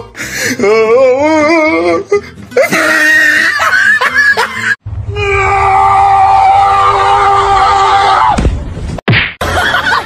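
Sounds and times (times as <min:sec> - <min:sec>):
voice wailing: 0:05.0 - 0:08.2.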